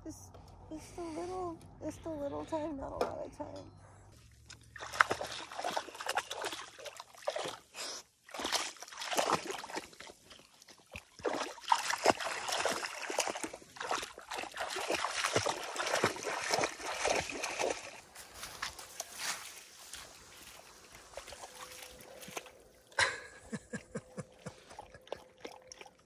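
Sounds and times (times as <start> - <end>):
dog splashing through water: 4.6 - 23.0, 24.3 - 26.0.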